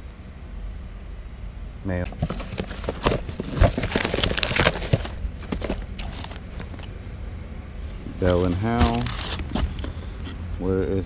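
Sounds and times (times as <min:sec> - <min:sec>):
cardboard and paper rustling: 0:02.1 - 0:07.0, 0:07.8 - 0:10.4.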